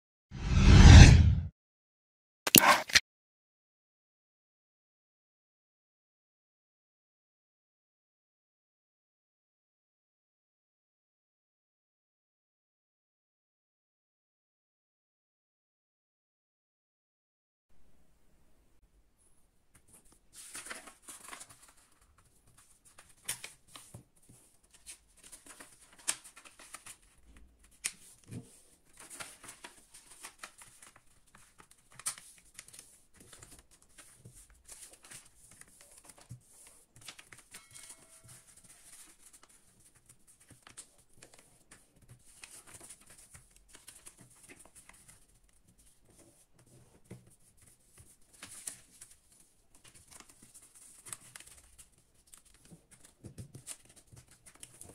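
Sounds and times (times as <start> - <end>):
paper taps and crackles: 19.7 - 37.6, 38.3 - 54.9
paper rustling and creasing: 20.3 - 37.6, 38.2 - 54.9.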